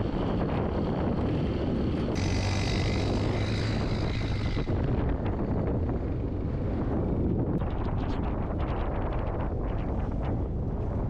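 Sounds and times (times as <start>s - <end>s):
motorcycle engine running: 0.0s - 8.4s
wind buffeting microphone: 0.0s - 11.0s.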